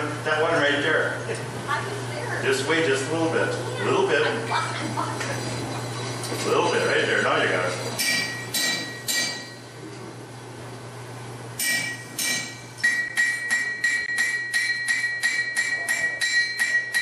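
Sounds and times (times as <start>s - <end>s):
hammer striking steel on anvil: 8.0s - 9.7s, 11.6s - 17.0s.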